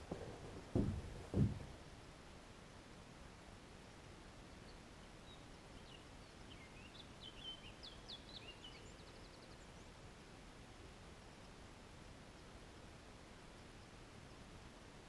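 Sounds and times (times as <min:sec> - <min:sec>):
faint bird song: 0:03.7 - 0:15.0.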